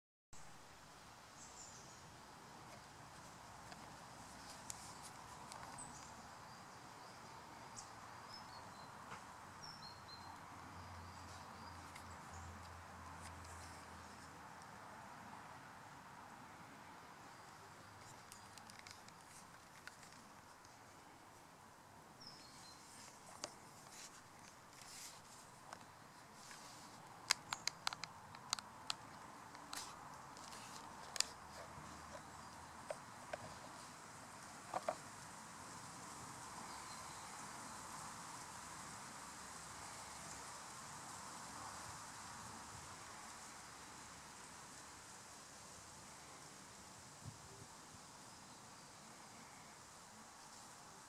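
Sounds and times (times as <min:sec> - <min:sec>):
light clicks: 0:27.2 - 0:31.4.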